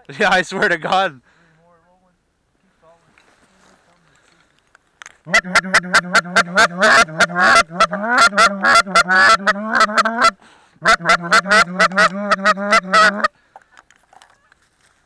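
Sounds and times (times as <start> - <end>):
goose call clucks and honks: 5.3 - 13.3.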